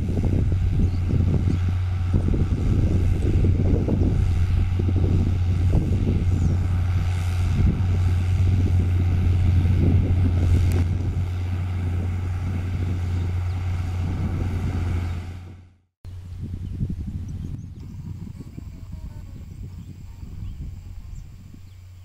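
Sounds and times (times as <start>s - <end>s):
tractor diesel engine under load: 0.0s - 17.4s.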